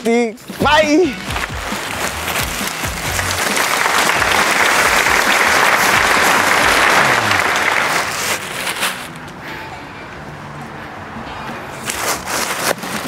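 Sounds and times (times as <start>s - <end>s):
plastic sheet rustling and crinkling: 0.5s - 9.3s, 11.8s - 13.0s.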